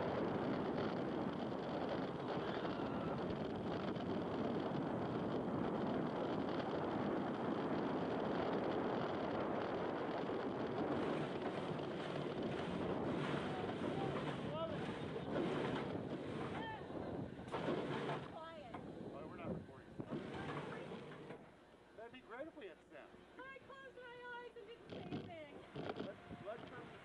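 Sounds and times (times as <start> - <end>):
wind rushing on microphone: 0.0 - 21.2, 24.8 - 27.0
roller coaster train rumble: 0.0 - 21.6.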